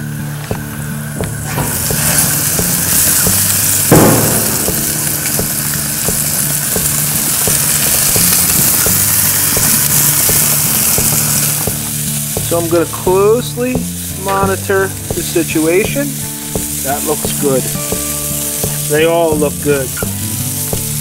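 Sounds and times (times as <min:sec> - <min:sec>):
steady low hum: 0:00.0 - 0:15.2
fat popping: 0:00.0 - 0:21.0
meat sizzling on a grill: 0:00.0 - 0:21.0.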